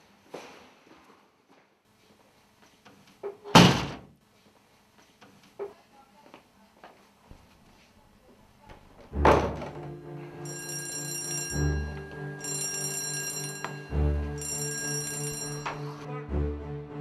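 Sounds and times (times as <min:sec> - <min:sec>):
heavy thump: 0:09.1 - 0:09.9
dramatic background music: 0:11.5 - 0:14.4, 0:15.2 - 0:17.0.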